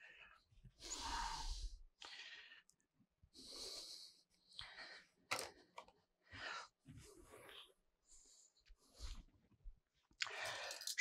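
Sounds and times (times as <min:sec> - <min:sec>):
faint breathing: 0:00.0 - 0:05.3, 0:10.2 - 0:11.0.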